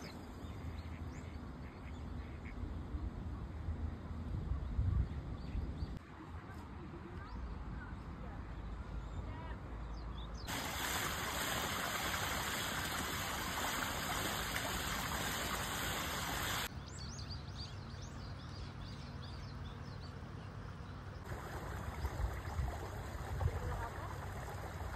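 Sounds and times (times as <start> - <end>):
stream running over rocks: 10.5 - 16.7, 21.3 - 24.9.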